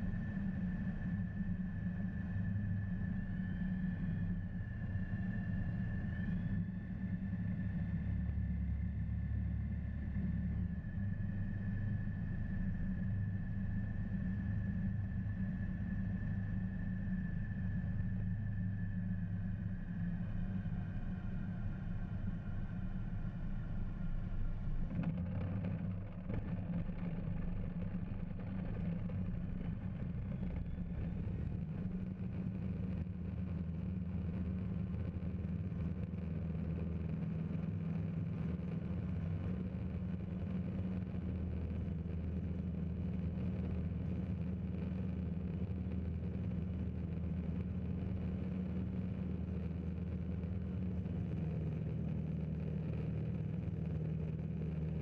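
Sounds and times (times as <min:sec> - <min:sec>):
propeller engine running: 0:23.3 - 0:55.0.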